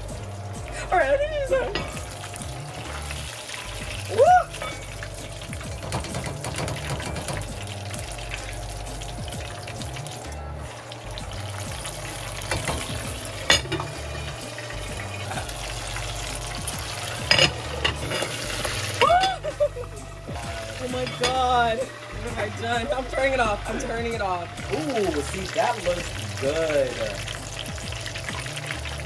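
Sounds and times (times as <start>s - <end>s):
meat deep-frying sizzle: 0.0s - 29.0s
metal clinks against pot: 17.2s - 18.4s, 21.0s - 21.6s.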